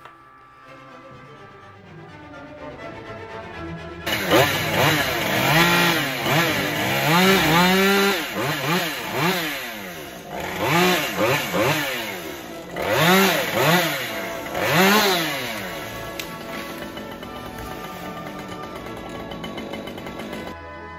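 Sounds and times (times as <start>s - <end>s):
chainsaw revving: 4.0s - 20.6s.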